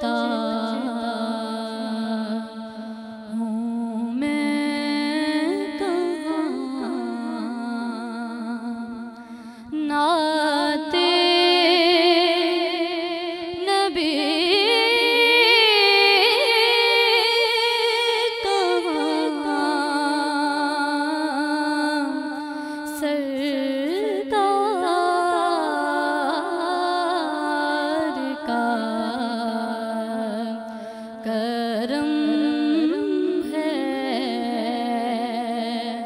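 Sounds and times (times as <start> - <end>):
woman singing unaccompanied: 0.0 - 36.0.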